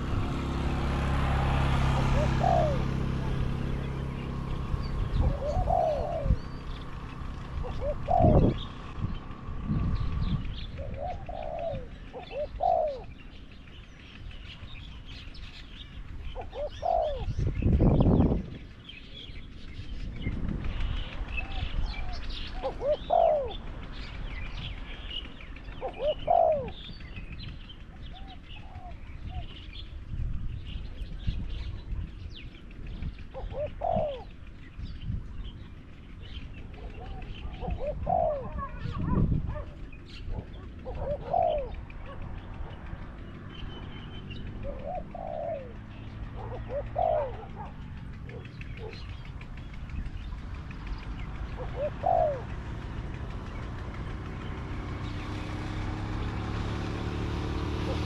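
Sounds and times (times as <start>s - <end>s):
doves cooing: 0.0s - 30.0s, 30.7s - 58.0s
small birds chirping: 0.0s - 58.0s
low rumble: 3.1s - 12.1s.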